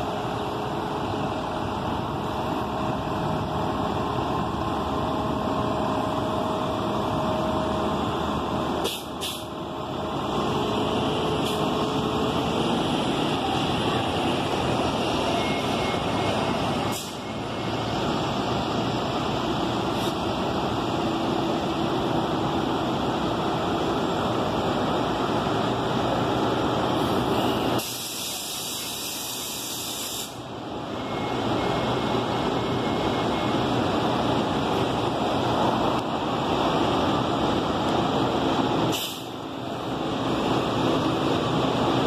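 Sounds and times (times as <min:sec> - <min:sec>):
bus engine running: 0:00.0 - 0:42.0
street traffic noise: 0:00.0 - 0:42.0
hiss: 0:08.8 - 0:09.5, 0:27.8 - 0:30.4, 0:38.9 - 0:39.4.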